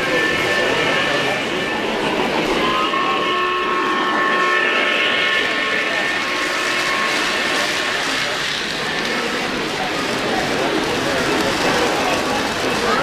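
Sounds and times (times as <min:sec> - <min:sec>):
high steady tones: 0:00.0 - 0:08.8
crowd chatter: 0:00.0 - 0:13.0
model train wheels rumbling: 0:00.0 - 0:13.0.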